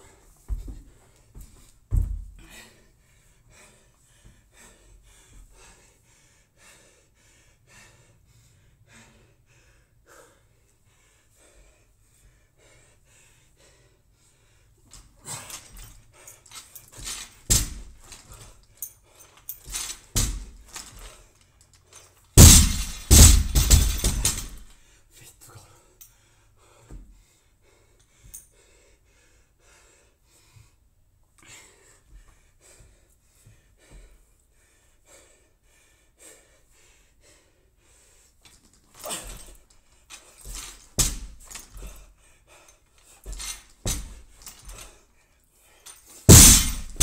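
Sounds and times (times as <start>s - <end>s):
light knocks of bar and plates: 17.0s - 18.4s
barbell crashing on rubber floor: 22.4s - 24.6s, 46.3s - 47.0s.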